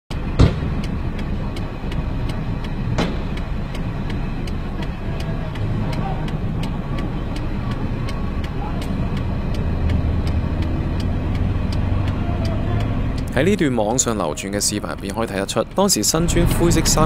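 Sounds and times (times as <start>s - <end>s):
street traffic rumble: 0.1s - 17.0s
metal pipe hitting car window: 3.0s - 3.4s.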